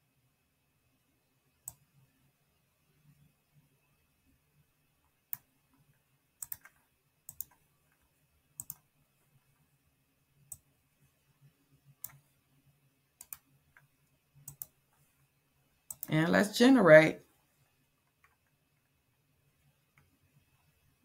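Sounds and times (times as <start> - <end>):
computer mouse clicking: 1.6 - 2.0, 5.3 - 9.6, 10.5 - 10.7, 12.0 - 12.3, 13.2 - 14.8, 15.9 - 16.1, 18.0 - 19.0.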